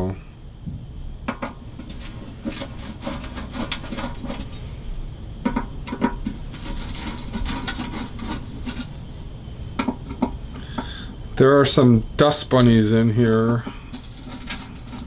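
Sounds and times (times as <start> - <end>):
screws scraping and clicking metal: 1.8 - 4.6, 5.5 - 8.9, 13.6 - 15.0.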